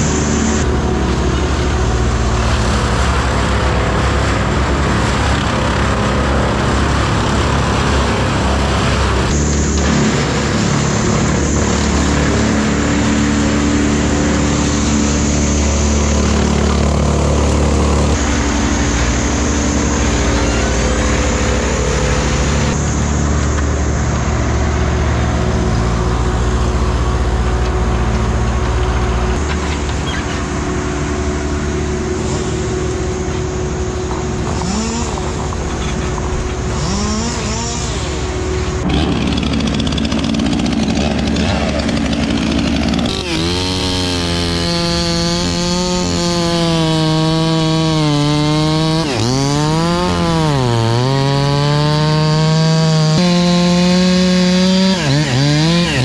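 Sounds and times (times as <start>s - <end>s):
mini excavator engine: 0.0s - 56.0s
wood chipper running: 0.0s - 56.0s
chainsaw starting up: 34.3s - 56.0s.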